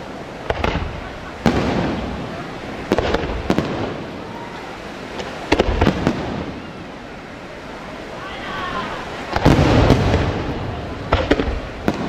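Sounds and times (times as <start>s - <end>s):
firework shells bursting: 0.4s - 4.2s, 5.2s - 6.6s, 9.3s - 12.0s.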